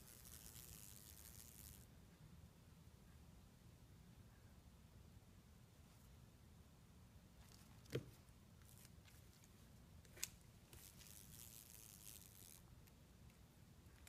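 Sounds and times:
faint scratchy rustle: 7.4s - 12.6s.

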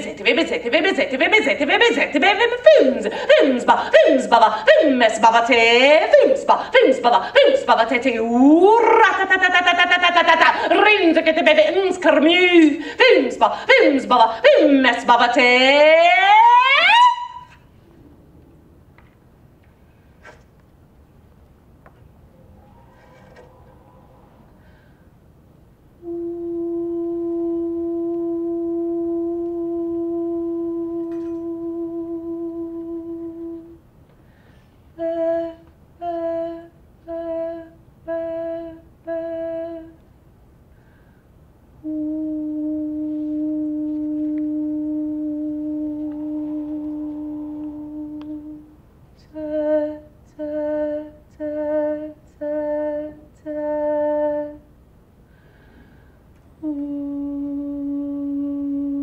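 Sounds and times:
woman singing held notes: 26.0s - 33.8s, 41.8s - 54.6s.

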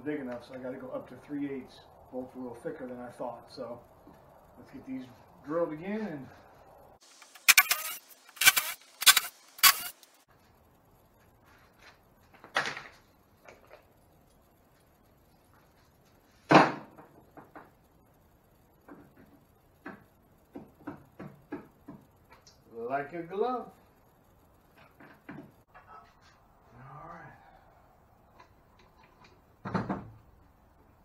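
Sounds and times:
cordless drill drilling: 7.2s - 10.0s.

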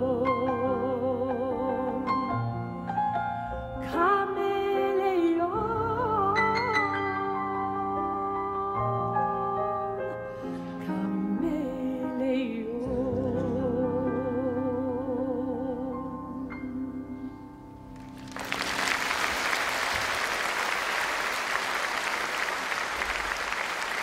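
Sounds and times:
woman singing: 0.0s - 2.6s, 3.8s - 17.4s
audience applause: 18.0s - 24.0s.

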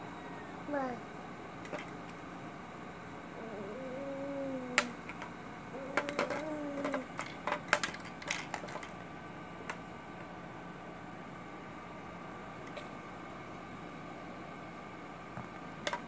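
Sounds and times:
baby cooing: 0.7s - 1.0s, 3.4s - 5.0s, 5.7s - 7.2s.

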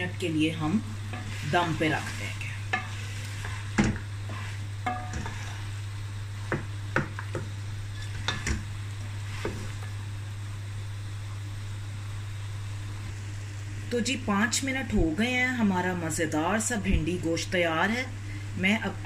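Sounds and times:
steady low hum: 0.0s - 19.0s
wooden spatula scraping metal pot: 1.1s - 6.7s, 7.8s - 8.6s.

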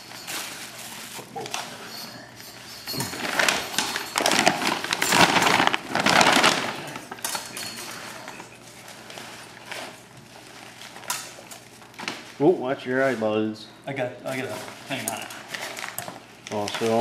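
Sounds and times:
crinkling clinking handling noise: 0.0s - 12.4s, 14.3s - 17.0s.

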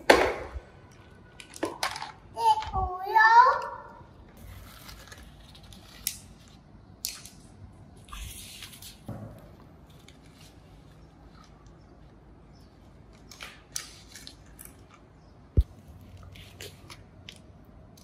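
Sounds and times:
toy cars clicking and rustling: 0.9s - 2.8s.

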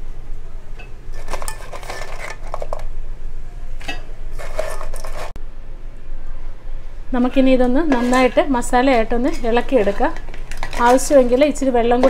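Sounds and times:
metal ladle clattering: 1.1s - 2.9s, 3.8s - 5.3s, 7.9s - 12.0s
crab shells clattering in metal pot: 1.2s - 2.9s, 3.9s - 5.3s, 7.9s - 12.0s.

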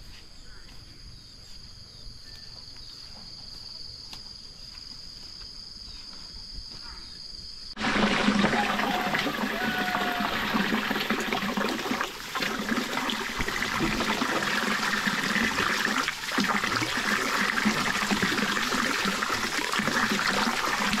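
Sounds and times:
water trickling: 7.8s - 21.0s.

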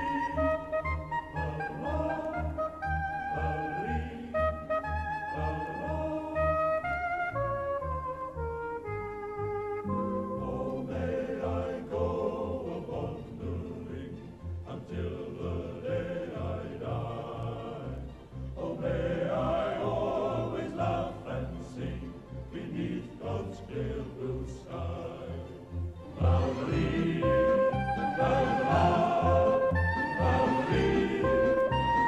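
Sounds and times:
voices singing: 0.0s - 7.4s, 9.9s - 32.0s.

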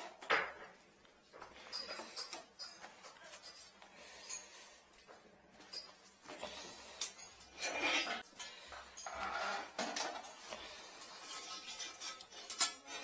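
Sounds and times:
wire tool scraping porcelain: 7.0s - 8.3s, 8.9s - 13.0s.

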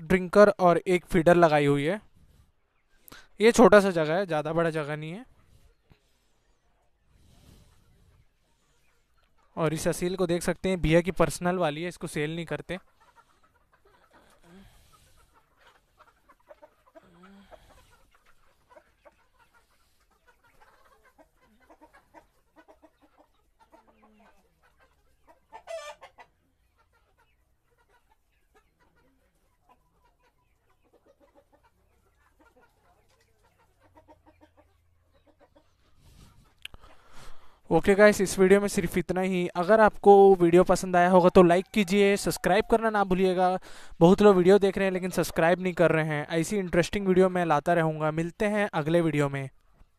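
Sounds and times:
chickens clucking: 0.0s - 49.9s
chicken squawk: 12.8s - 37.5s, 40.9s - 43.9s.

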